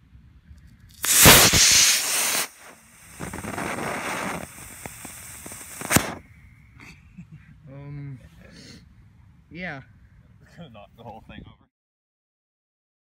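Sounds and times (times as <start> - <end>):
crackles: 0.6 - 6.3
rocket motor rushing hiss: 0.9 - 6.2.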